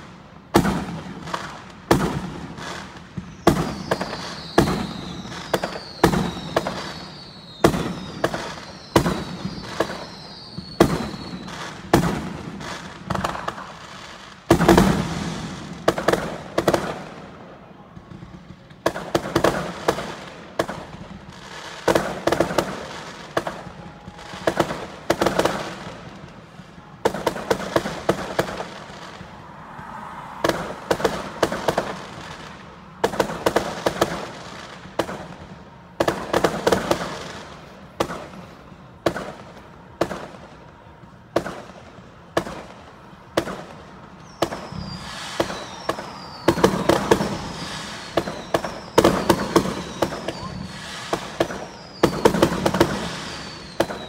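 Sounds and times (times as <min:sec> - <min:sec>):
falling firework whistles: 0:00.0 - 0:40.7, 0:41.4 - 0:54.0
firework bangs and crackle: 0:00.0 - 0:54.0.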